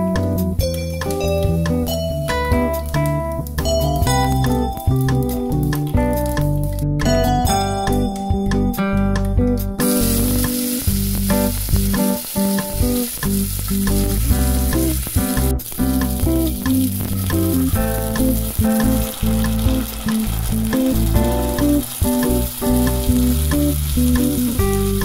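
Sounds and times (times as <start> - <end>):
background music: 0.0 - 25.0
spices sizzling in hot oil: 9.8 - 25.0.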